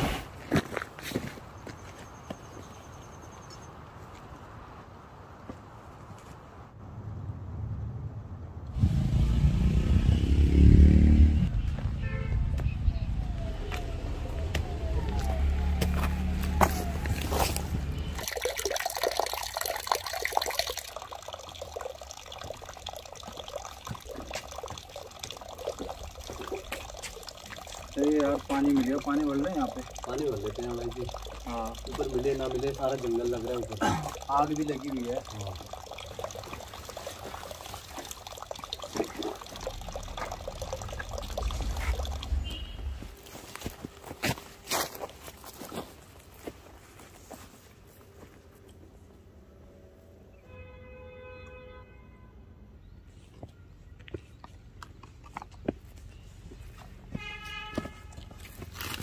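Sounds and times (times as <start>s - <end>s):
water trickling and splashing: 13.1s - 47.4s, 54.2s - 59.0s
low rumble: 40.5s - 43.2s.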